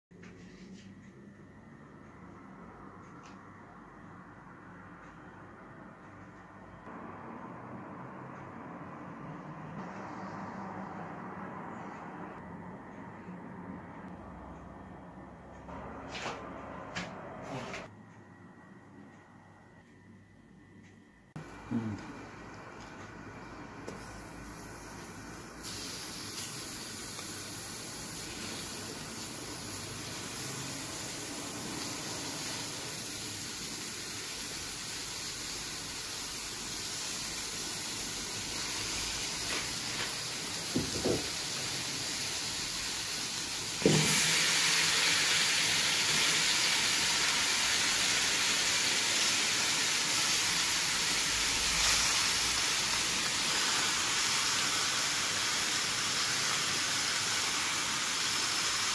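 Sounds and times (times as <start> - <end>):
meat sizzling in a pot: 23.8 - 58.9.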